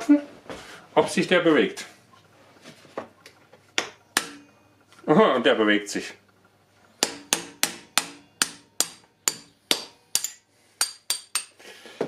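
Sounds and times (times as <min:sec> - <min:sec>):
hammer striking metal punch: 0:03.8 - 0:04.4, 0:07.0 - 0:11.6.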